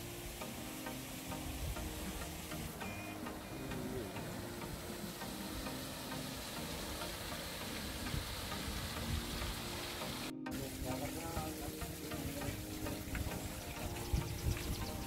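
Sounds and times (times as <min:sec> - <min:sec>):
faint background music: 0:00.0 - 0:15.0
steady hiss: 0:00.0 - 0:15.0.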